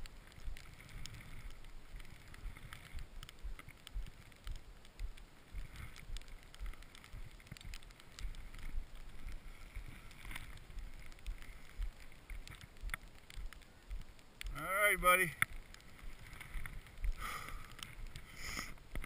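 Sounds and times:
light clicks and rustles of gear: 0.0s - 19.0s.

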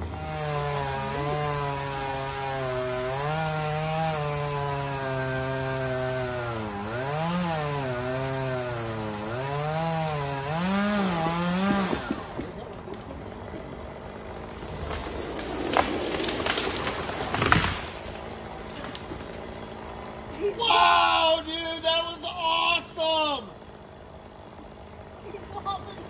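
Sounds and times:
sharp wood cracks: 0.0s - 20.3s
chainsaw cutting wood: 0.0s - 26.0s.

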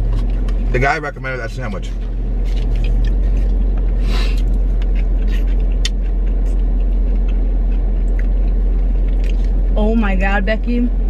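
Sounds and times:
car idling rumble: 0.0s - 11.0s
small eating clicks: 4.7s - 9.6s.

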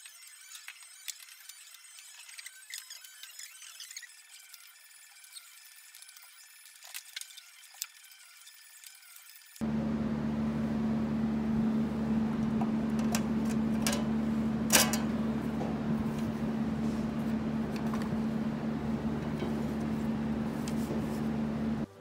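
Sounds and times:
low machine hum: 9.6s - 22.0s.

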